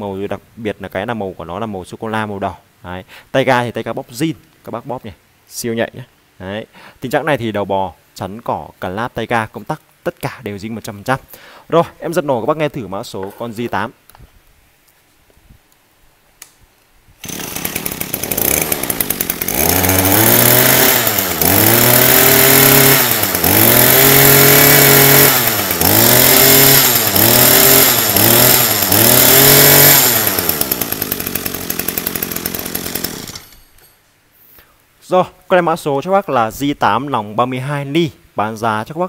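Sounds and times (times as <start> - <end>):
brush cutter engine revving: 17.2 - 33.6.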